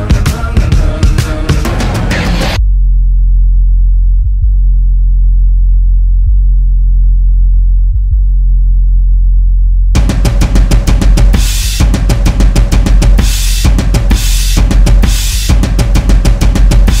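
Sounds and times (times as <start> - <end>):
drum kit: 0.0 - 2.6, 10.0 - 17.0
deep sub-bass tone: 0.0 - 17.0.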